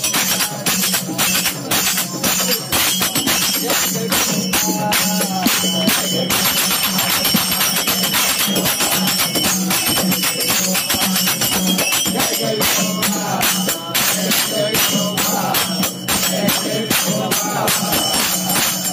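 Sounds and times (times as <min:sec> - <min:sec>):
hand percussion jingling and clashing: 0:00.0 - 0:18.9
voices singing: 0:00.0 - 0:18.9.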